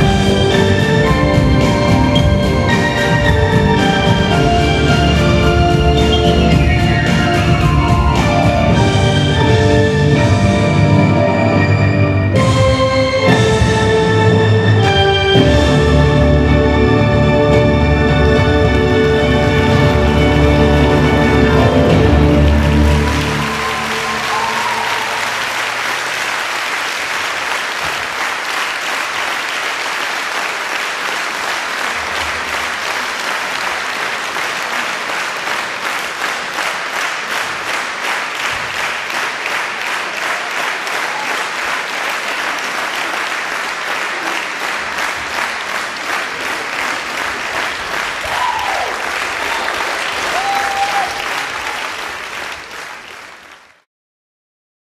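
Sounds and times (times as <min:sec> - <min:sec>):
audience applauding: 0:00.0 - 0:10.3, 0:18.2 - 0:53.8
crowd calling out: 0:19.0 - 0:26.1, 0:48.1 - 0:51.8.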